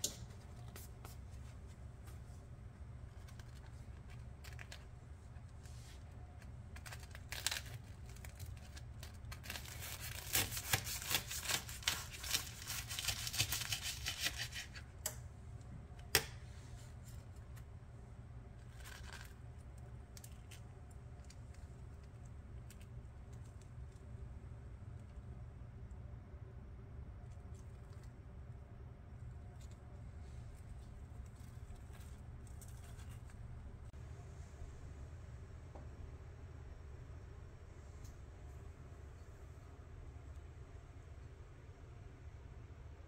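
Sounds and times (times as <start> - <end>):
steady low hum: 0.0 - 43.0
crust crackling and crunching: 3.0 - 14.8, 18.5 - 24.2.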